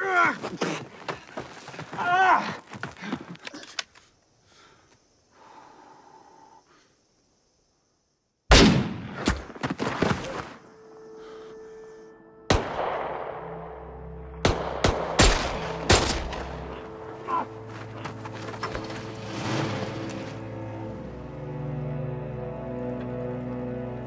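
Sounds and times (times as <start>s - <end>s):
footsteps in loose dirt: 0.0s - 4.1s, 9.4s - 10.7s, 15.7s - 20.6s
rifle shots: 8.5s - 9.2s, 14.4s - 16.5s.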